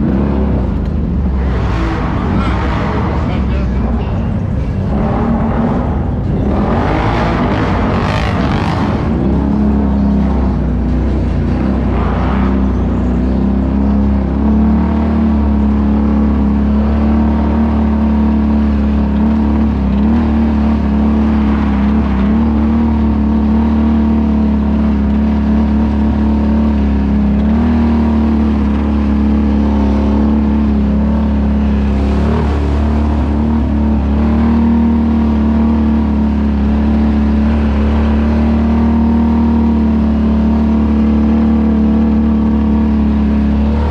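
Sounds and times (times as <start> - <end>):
atv engine running: 0.0 - 43.9.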